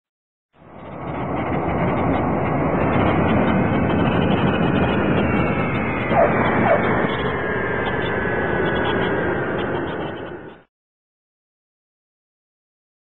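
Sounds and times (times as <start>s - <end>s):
light aircraft engine roar: 0.6s - 10.7s.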